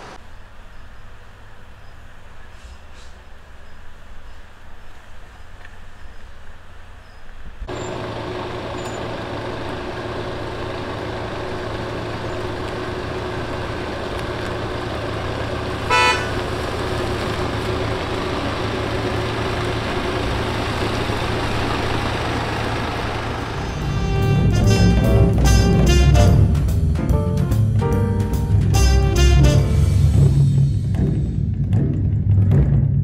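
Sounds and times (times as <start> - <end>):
truck engine humming: 0.0 - 32.2
horn toot: 15.8 - 16.5, 23.6 - 26.8, 28.6 - 30.5.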